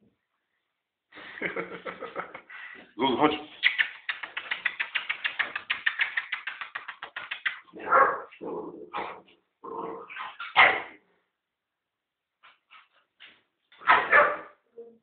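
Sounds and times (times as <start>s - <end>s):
dog claws clicking on tile: 3.6s - 7.7s
dogs barking: 7.8s - 8.4s, 13.8s - 14.6s.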